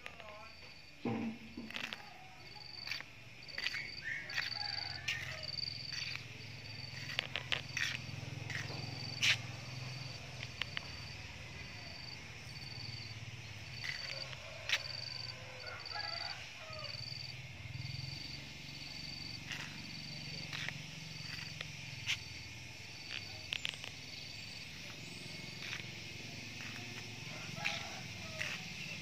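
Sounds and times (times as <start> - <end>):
insect chirping: 0.0 - 29.0.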